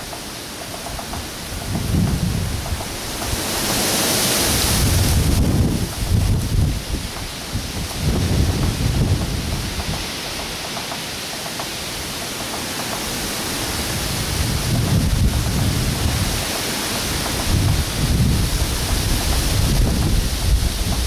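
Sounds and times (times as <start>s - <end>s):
woodpecker tapping on wood: 0.0s - 3.9s, 8.3s - 13.2s, 14.8s - 16.4s, 17.1s - 18.0s, 18.6s - 21.0s
wind buffeting microphone: 1.2s - 10.4s, 13.2s - 21.0s.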